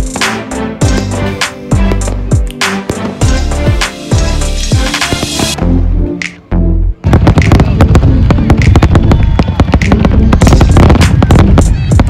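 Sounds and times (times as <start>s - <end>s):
music with heavy bass: 0.0s - 12.0s
fireworks crackling and popping: 1.8s - 5.6s, 7.0s - 12.0s.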